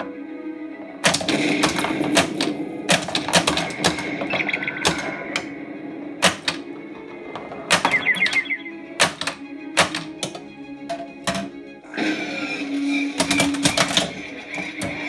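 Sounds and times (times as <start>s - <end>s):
pinball machine clacks: 1.0s - 5.5s, 6.2s - 6.8s, 7.4s - 11.6s, 13.1s - 15.0s
beeping sound effects: 3.7s - 5.5s, 7.6s - 9.0s.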